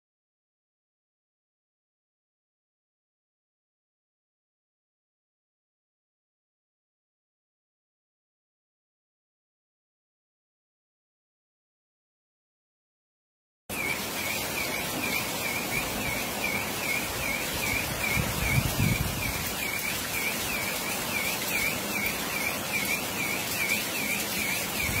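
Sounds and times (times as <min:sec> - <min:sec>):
heavy rain: 0:13.7 - 0:25.0
high repeating chirp: 0:13.7 - 0:25.0.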